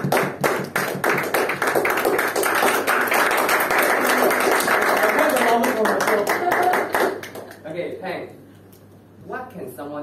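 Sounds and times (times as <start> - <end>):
small audience clapping: 0.0 - 8.0.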